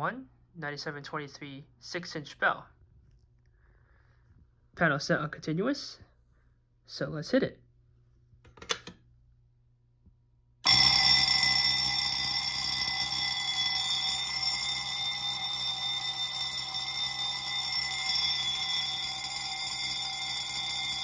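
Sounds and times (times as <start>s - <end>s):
fire alarm bell ringing: 10.6s - 21.0s.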